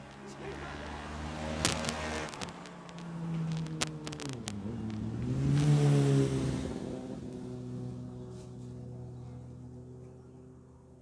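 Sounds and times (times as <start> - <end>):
vehicle engine running: 0.0 - 11.0
sharp clicks: 1.6 - 5.7.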